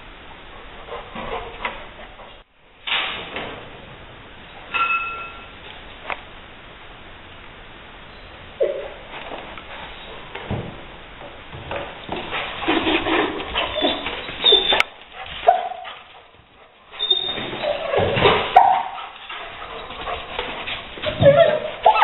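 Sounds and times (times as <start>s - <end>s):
scuffling and knocks: 9.0s - 22.0s
dog whining: 13.5s - 16.0s, 16.9s - 20.1s, 21.0s - 22.0s
dog barking: 15.4s - 16.8s, 17.7s - 19.2s, 21.2s - 22.0s.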